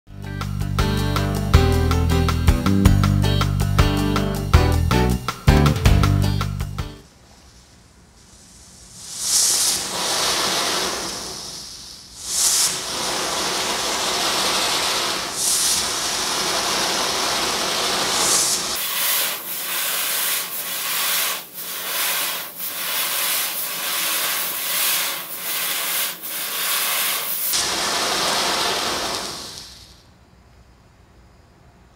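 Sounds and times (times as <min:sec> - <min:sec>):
firework spraying sparks hiss: 0:07.3 - 0:30.1.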